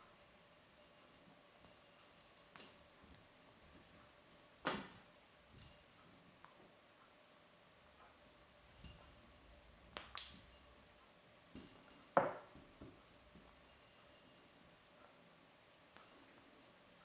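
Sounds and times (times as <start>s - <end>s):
small bell jingling: 0.0s - 6.1s, 8.7s - 15.0s, 16.0s - 17.0s.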